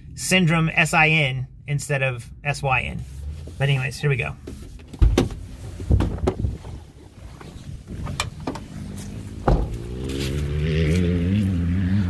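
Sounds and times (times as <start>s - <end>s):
van door slamming: 5.0s - 6.5s, 7.8s - 10.0s
van door clicking: 7.4s - 8.8s, 9.4s - 9.9s.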